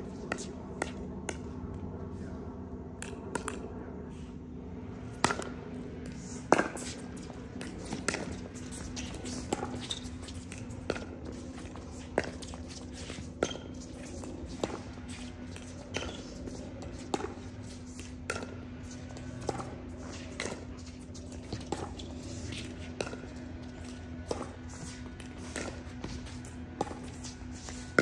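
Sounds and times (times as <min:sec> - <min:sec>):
steady low hum: 0:00.0 - 0:28.0
ball bouncing on court: 0:05.2 - 0:05.7, 0:06.4 - 0:28.0.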